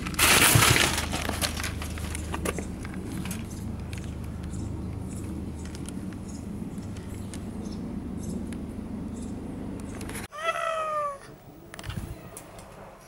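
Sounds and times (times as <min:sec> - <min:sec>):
plastic sheet rustling: 0:00.0 - 0:03.5
steady low hum: 0:00.9 - 0:10.3.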